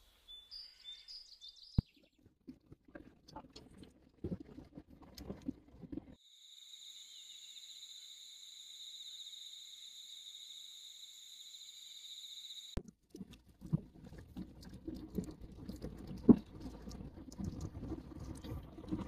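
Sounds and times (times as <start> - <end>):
cicadas droning: 6.2 - 12.8.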